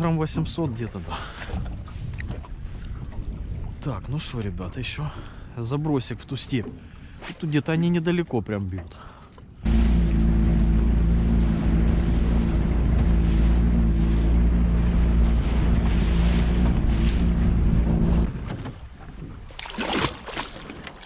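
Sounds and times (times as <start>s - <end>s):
water noise: 6.4s - 21.0s
boat motor running: 9.6s - 19.0s
wind noise: 9.6s - 20.9s.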